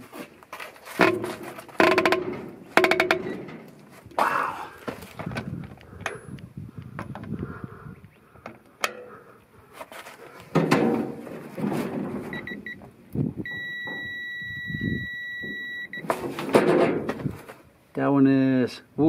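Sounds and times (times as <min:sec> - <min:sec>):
scuffing and thumps: 0:04.8 - 0:05.8.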